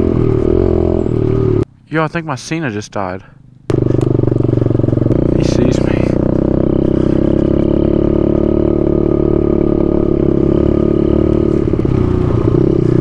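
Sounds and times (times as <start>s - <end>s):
pit bike engine running: 3.4s - 13.0s.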